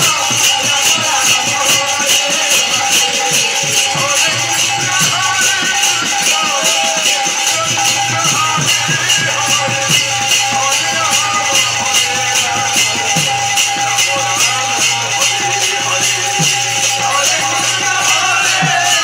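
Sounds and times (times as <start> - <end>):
droning harmonium: 0.0 - 19.0
drum strokes: 0.0 - 19.0
hand cymbals clashing: 0.0 - 19.0
man singing: 0.0 - 19.0.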